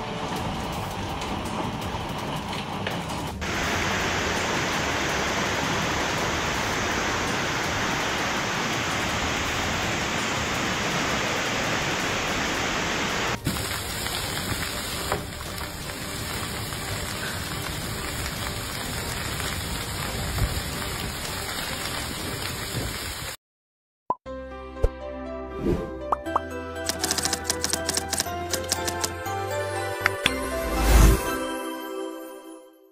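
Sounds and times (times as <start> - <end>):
hail and heavy rain pelting: 0.0 - 23.4.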